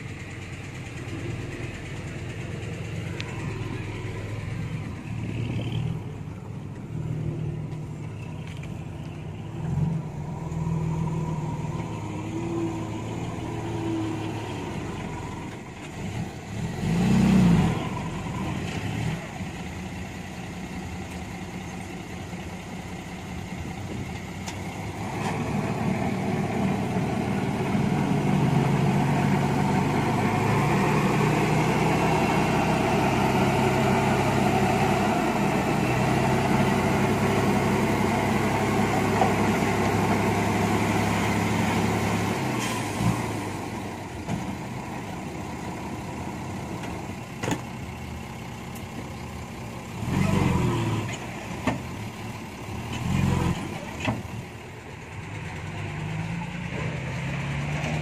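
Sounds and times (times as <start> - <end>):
diesel truck engine revving: 0.0 - 58.0.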